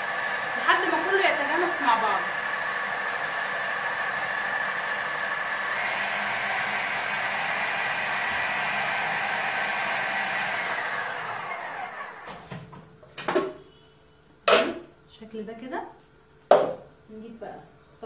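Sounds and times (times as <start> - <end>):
electric chopper motor running: 0.0 - 12.4.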